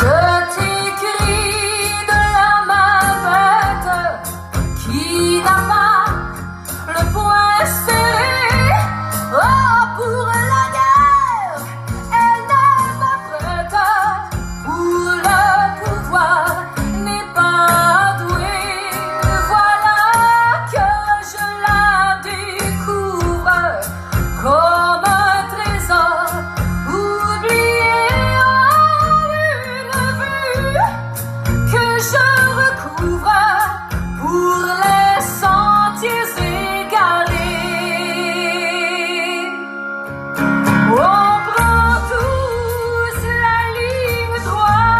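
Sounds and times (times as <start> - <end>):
woman singing: 0.0 - 39.8, 40.8 - 44.9
bass: 0.0 - 44.9
plucked guitar: 0.0 - 44.9.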